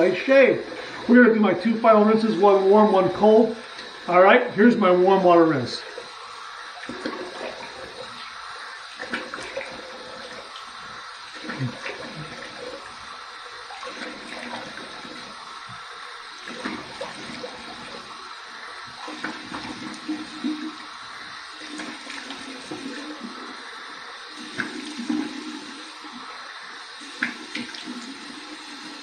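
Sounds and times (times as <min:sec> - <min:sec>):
water running from sink tap: 0:00.0 - 0:29.0
water splashing face: 0:05.9 - 0:28.4.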